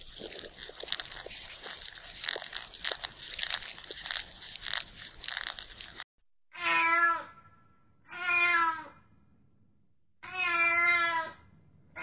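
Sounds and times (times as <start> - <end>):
cat meowing: 6.6 - 7.3, 8.1 - 9.0, 10.2 - 11.4.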